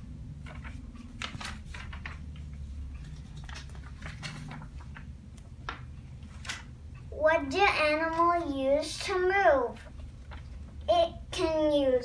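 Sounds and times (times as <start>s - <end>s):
steady low hum: 0.0s - 11.4s
paper rustling and shuffling: 0.3s - 6.7s, 9.8s - 10.8s.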